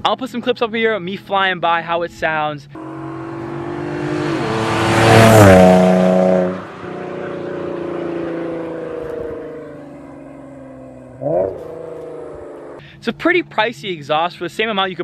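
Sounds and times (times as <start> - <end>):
car exhaust passing by: 2.8 - 12.8.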